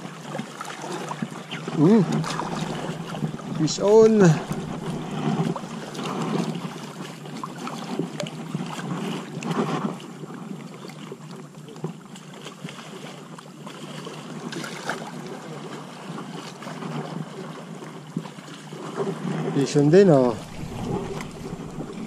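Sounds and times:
lake water sloshing and lapping: 0:00.0 - 0:22.0
wind buffeting microphone: 0:01.6 - 0:06.9, 0:19.7 - 0:22.0.

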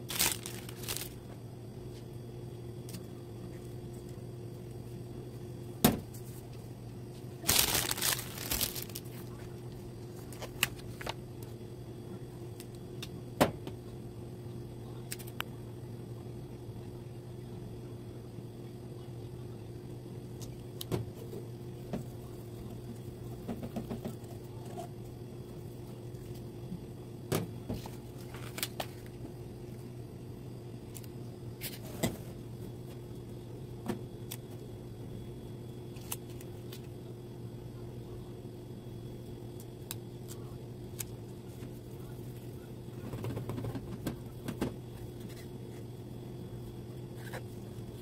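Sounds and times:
steady low hum: 0:00.0 - 0:48.0
paper rustling: 0:00.1 - 0:01.2, 0:07.4 - 0:09.3.

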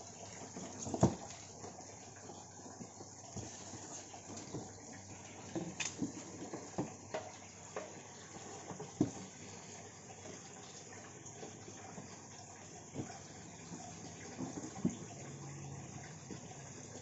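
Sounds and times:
knocks and rustles of cardboard box: 0:00.6 - 0:01.5.

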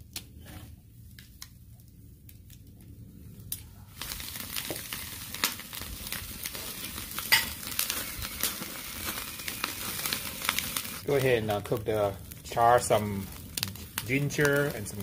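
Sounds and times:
sharp crack: 0:03.5 - 0:15.0
food sizzling and crackling: 0:03.8 - 0:15.0.

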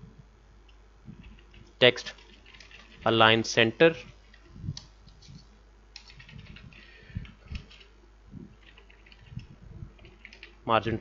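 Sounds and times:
typing on computer keyboard: 0:01.2 - 0:03.0, 0:06.0 - 0:07.9, 0:08.6 - 0:10.6.

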